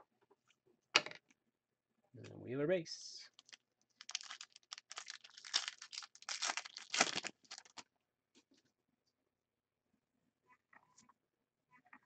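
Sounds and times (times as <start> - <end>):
foil wrapper crinkling: 3.3 - 7.8.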